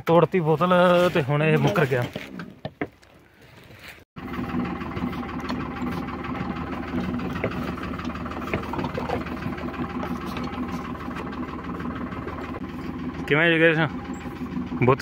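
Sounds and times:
tractor diesel engine idling: 4.2s - 15.0s.

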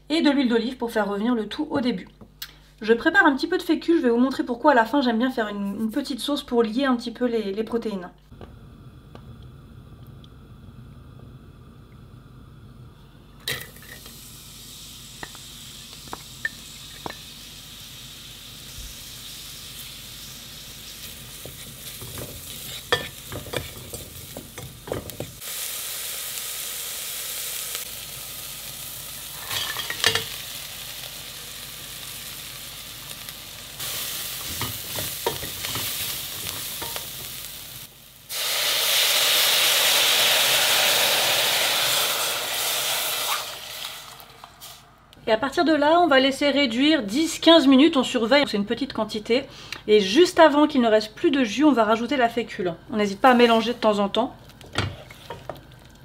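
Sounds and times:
onion sizzling in oil: 13.4s - 45.6s, 52.9s - 56.0s
spoon knocking and scraping pot: 21.4s - 25.4s, 29.5s - 30.4s, 34.5s - 37.3s
broth poured into hot pan: 25.4s - 45.0s.

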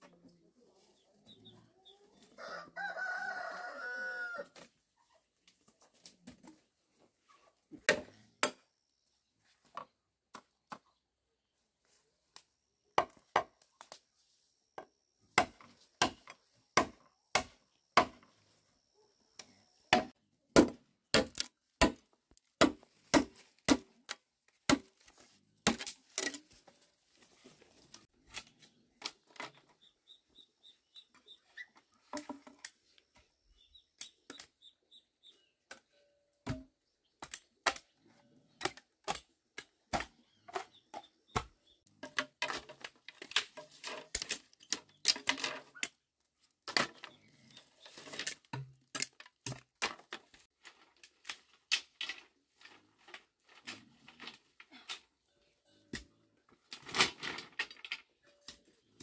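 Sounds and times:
machete chopping bamboo: 15.4s - 18.2s, 19.9s - 25.0s, 25.6s - 26.4s.

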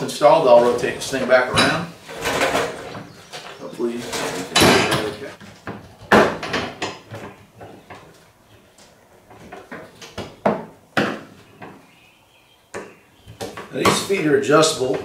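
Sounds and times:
metal parts knocking and clunking: 0.6s - 7.3s.

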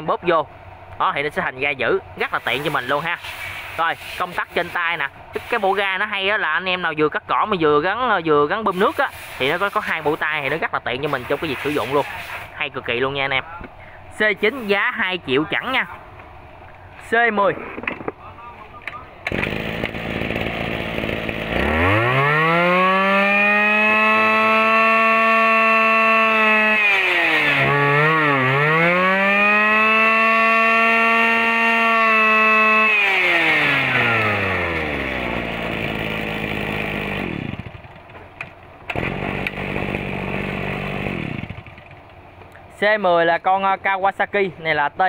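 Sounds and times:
brush cutter engine revving: 2.2s - 5.8s, 8.7s - 12.5s, 18.9s - 38.2s, 38.9s - 42.2s.

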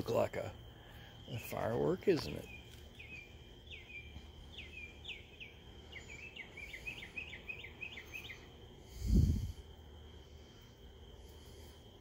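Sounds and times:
insects droning: 0.0s - 12.0s
bird chirping: 0.8s - 9.3s.

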